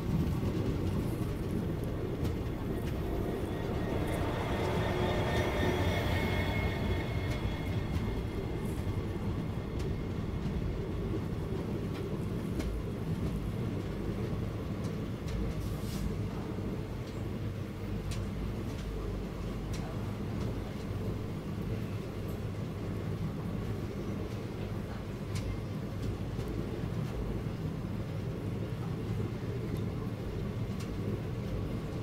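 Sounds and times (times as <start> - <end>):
train wheels rumbling on rail: 0.0 - 32.0
faint high whine: 2.7 - 10.0.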